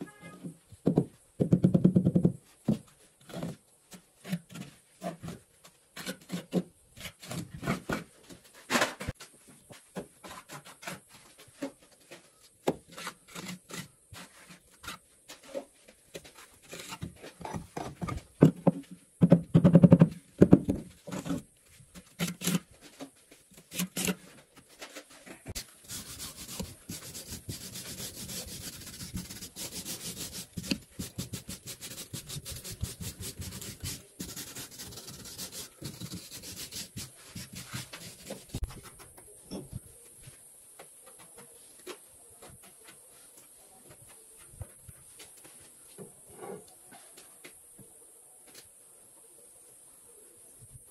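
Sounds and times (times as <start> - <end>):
trowel scraping mortar: 12.8 - 18.1, 22.0 - 22.7, 23.6 - 24.2, 25.5 - 39.1.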